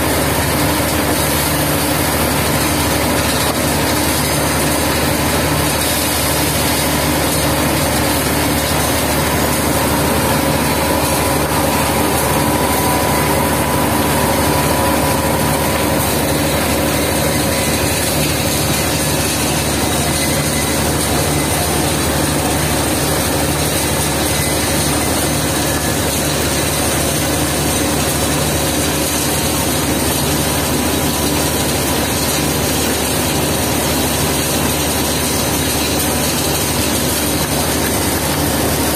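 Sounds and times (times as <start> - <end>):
plant machinery drone: 0.0 - 28.3
electric motors and conveyors humming: 0.0 - 38.9.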